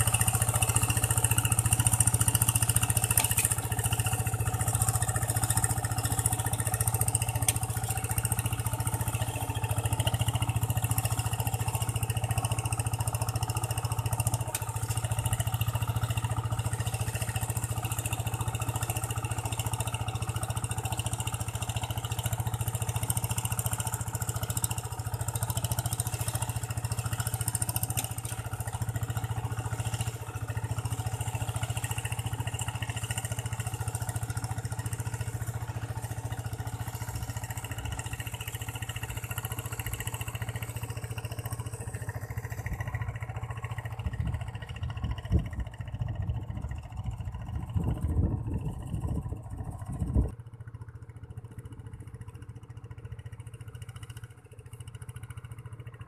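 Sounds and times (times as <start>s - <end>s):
diesel engine running under load: 0.0s - 56.0s.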